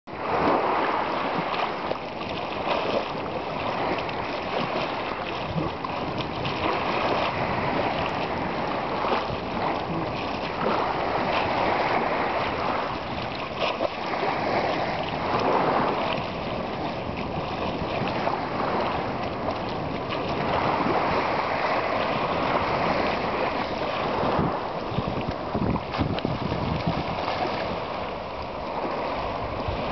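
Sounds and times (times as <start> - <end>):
seawater lapping and sloshing: 0.1 - 29.9.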